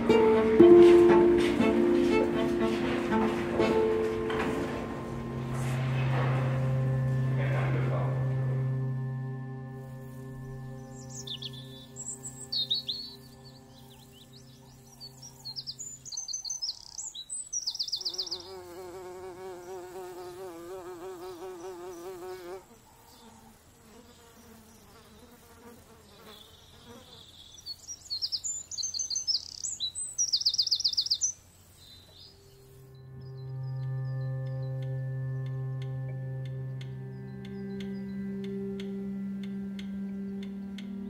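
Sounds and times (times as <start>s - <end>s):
songbirds chirping: 0.0s - 41.0s
flying insect buzzing: 17.8s - 27.4s.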